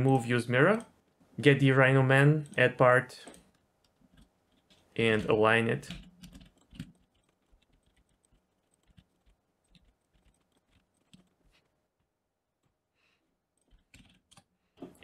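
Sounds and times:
computer keyboard and mouse clicks: 3.2 - 11.4, 13.6 - 15.0.

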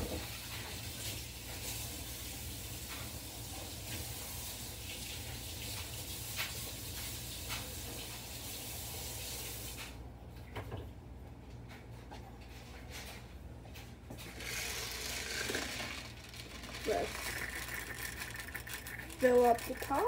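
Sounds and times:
kitchen tap running: 0.0 - 10.0, 14.2 - 20.0.

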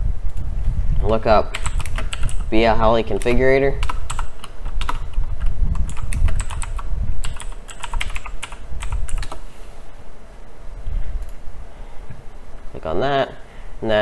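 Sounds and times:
typing on computer keyboard: 1.5 - 9.4.

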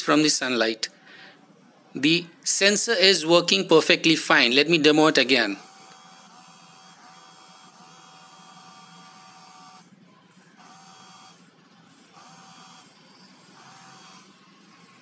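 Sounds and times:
small pump motor whining: 5.6 - 15.0.

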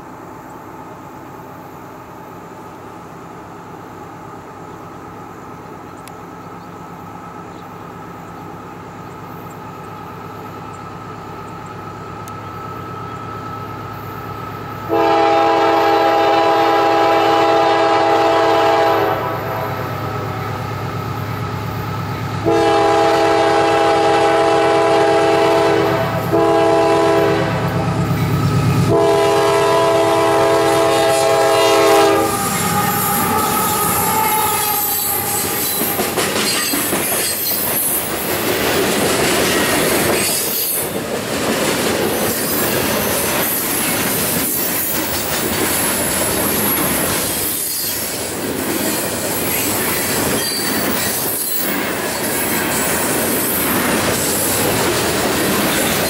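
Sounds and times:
diesel locomotive engine rumble: 0.0 - 56.0
locomotive air horn blasts: 14.9 - 20.4, 22.4 - 28.1, 28.9 - 35.9
wheels clattering on rails: 32.3 - 56.0.

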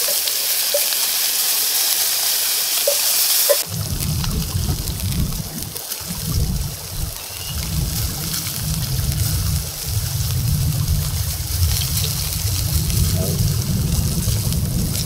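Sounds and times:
steak sizzling in skillet: 0.0 - 15.0
low rumble: 3.6 - 15.0.

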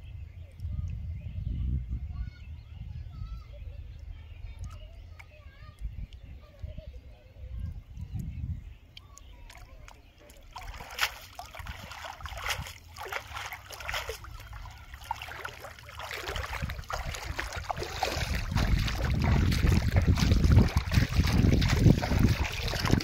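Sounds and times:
wading through water: 3.8 - 23.0
shallow water splashing: 9.0 - 23.0
water dripping from net: 9.0 - 23.0
low rumbling: 11.7 - 23.0.

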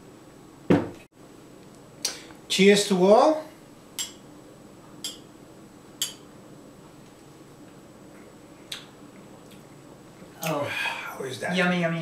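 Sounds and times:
small glasses clinking: 4.0 - 4.2, 5.0 - 5.3, 6.0 - 6.2.

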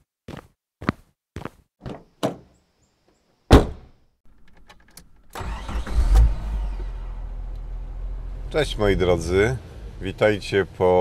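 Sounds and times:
loud thump: 3.5 - 3.9
car engine running: 5.1 - 10.8.

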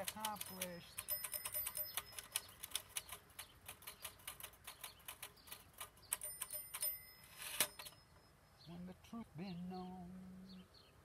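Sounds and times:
typewriter keys clacking: 0.0 - 7.0.

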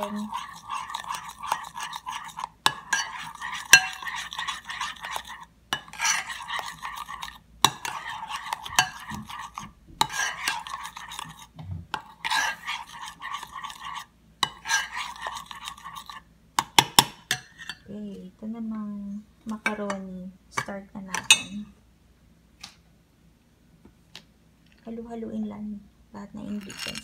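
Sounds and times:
metal spoon scraping a bowl: 0.0 - 17.9, 26.4 - 27.0.

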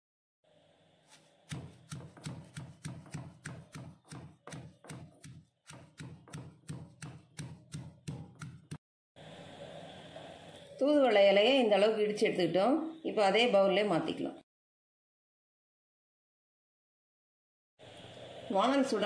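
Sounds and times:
stone pestle pounding in mortar: 1.5 - 8.8.

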